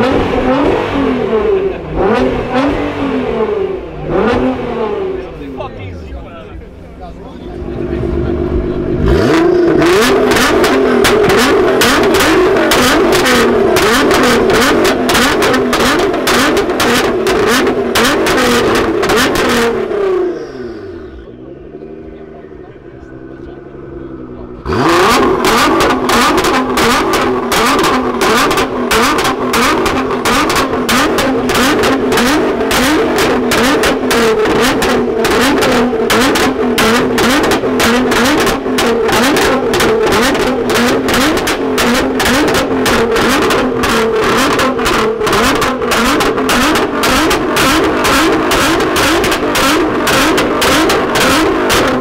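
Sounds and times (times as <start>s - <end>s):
car engine revving in blips: 0.0s - 52.0s
exhaust pops: 8.4s - 20.2s, 22.9s - 52.0s.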